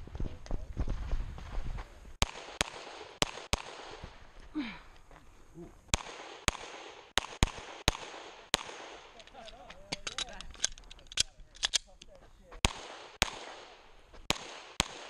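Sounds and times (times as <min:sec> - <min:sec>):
pistol shots at close range: 0:02.2 - 0:04.0, 0:05.9 - 0:09.4, 0:12.6 - 0:15.0.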